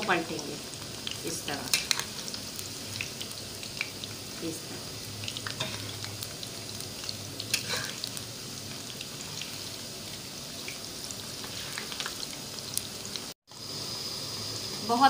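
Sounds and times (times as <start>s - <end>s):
food sizzling in hot oil: 0.0s - 15.0s
metal spoon scraping: 7.5s - 8.1s.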